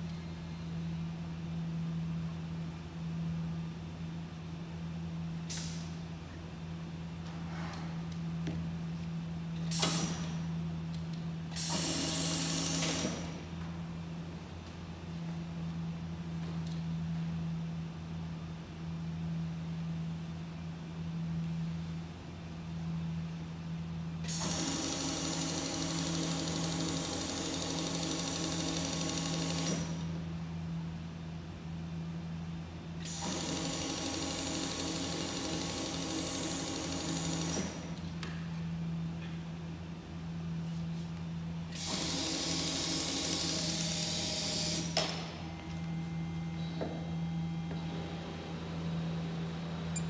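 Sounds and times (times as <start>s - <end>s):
steady low hum: 0.0s - 24.4s, 25.0s - 33.1s, 34.1s - 50.0s
low motor hum: 43.6s - 50.0s.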